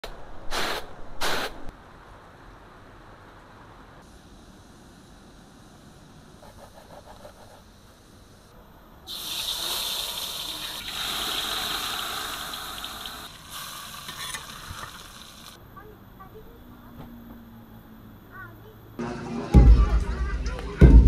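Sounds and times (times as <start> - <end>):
chili paste frying in oil: 9.1 - 15.6
hot oil sizzling: 9.1 - 15.6.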